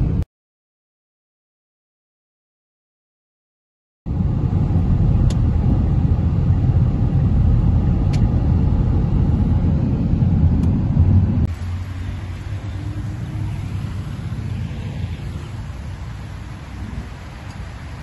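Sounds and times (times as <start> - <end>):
car road and engine rumble: 4.1 - 18.0.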